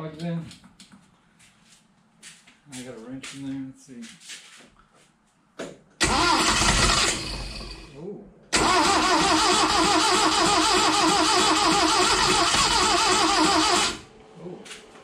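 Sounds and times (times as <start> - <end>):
engine starter cranking: 6.0 - 7.9, 8.5 - 14.1.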